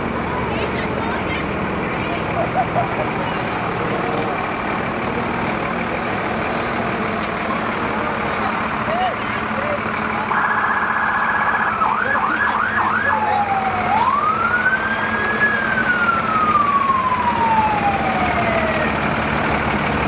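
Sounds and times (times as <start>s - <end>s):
low engine hum: 0.0s - 20.0s
siren wailing and yelping: 10.3s - 18.9s.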